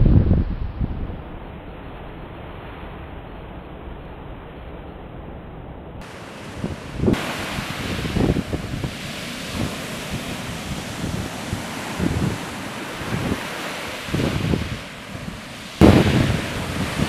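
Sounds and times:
wind buffeting microphone: 0:00.0 - 0:02.0, 0:06.0 - 0:17.0
surf breaking on beach: 0:06.0 - 0:17.0.

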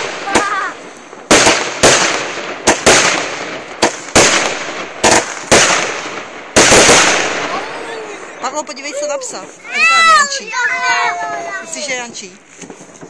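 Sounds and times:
fireworks bangs: 0:00.0 - 0:13.0.

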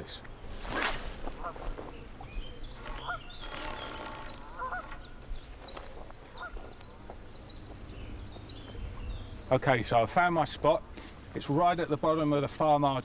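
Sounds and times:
small birds chirping: 0:00.0 - 0:12.5
goose honking: 0:02.8 - 0:05.1.

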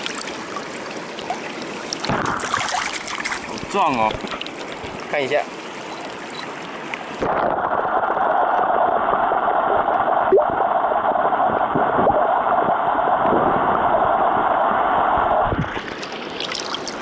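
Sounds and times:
muffled underwater stream rush: 0:00.0 - 0:17.0
small knocks and gurgles: 0:01.2 - 0:05.1.

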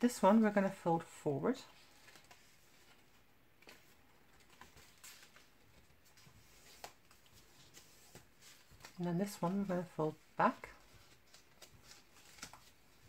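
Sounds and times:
card stock rustling: 0:01.8 - 0:13.0.

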